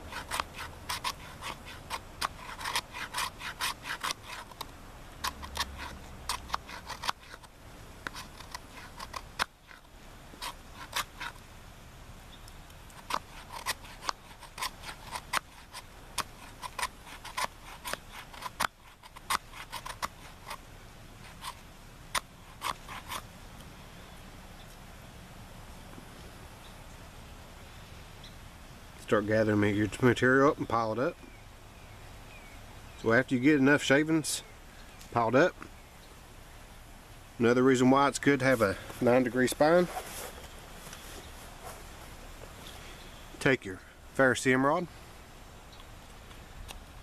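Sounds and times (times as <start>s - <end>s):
knife scraping wood shavings: 0.0s - 11.4s, 12.9s - 20.6s, 21.2s - 21.6s, 22.2s - 23.3s.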